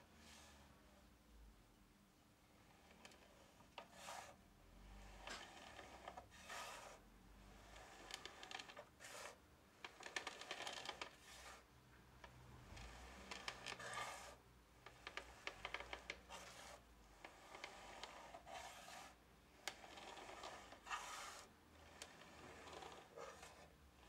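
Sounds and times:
metal scraping on wooden bench: 0:02.8 - 0:07.0, 0:07.6 - 0:11.6, 0:12.8 - 0:23.8.

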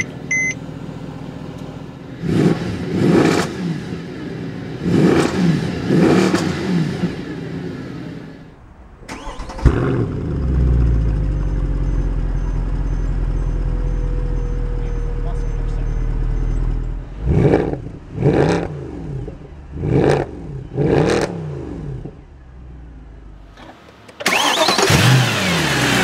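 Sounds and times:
car engine idling deeply: 0:00.0 - 0:02.2, 0:08.4 - 0:23.6
car engine revving: 0:02.1 - 0:26.0.

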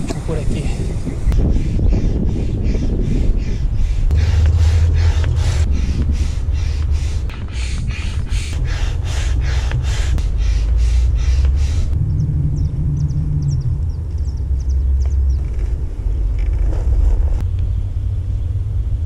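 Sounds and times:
low rumble: 0:00.0 - 0:19.0
hand pump whooshes of air: 0:03.8 - 0:12.0.

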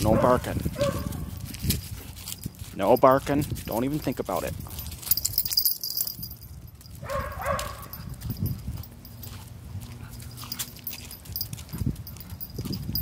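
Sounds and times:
dog barking: 0:00.1 - 0:01.3, 0:07.0 - 0:08.1.

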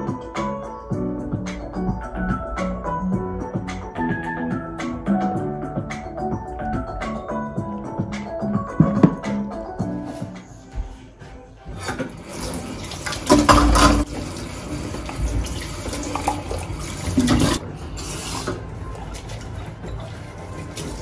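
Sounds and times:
crockery clattering in a sink: 0:13.0 - 0:14.1
tap running into a metal sink: 0:13.1 - 0:14.1.

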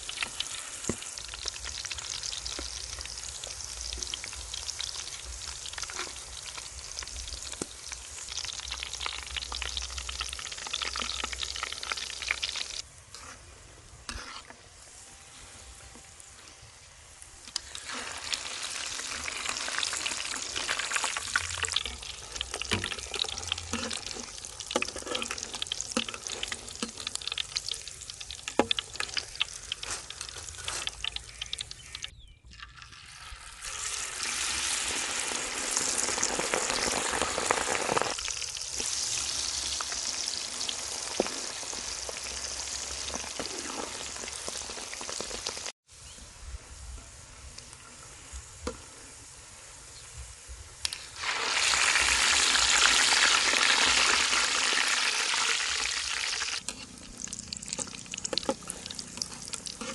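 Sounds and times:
food sizzling in hot oil: 0:00.0 - 0:46.2, 0:46.8 - 0:59.9
ladle scraping against wok: 0:13.1 - 0:15.0, 0:22.7 - 0:27.2, 0:56.6 - 0:57.2, 0:58.2 - 0:59.9.

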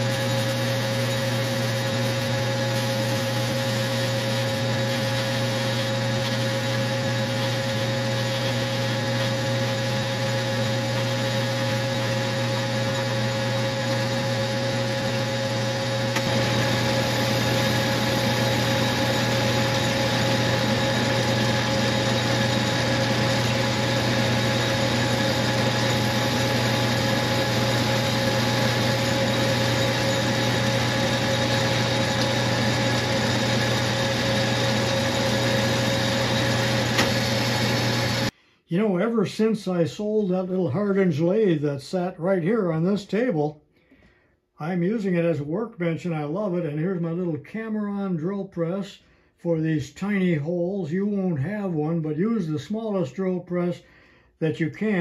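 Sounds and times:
metal lathe running: 0:00.0 - 0:38.3.

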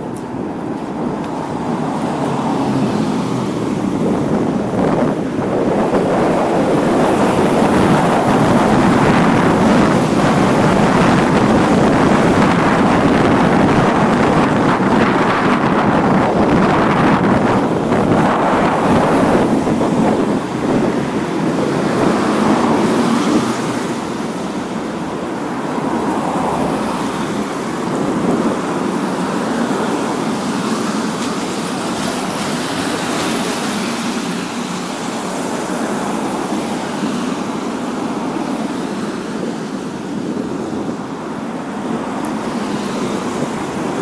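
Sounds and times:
cars passing on wet road: 0:00.0 - 0:44.0.

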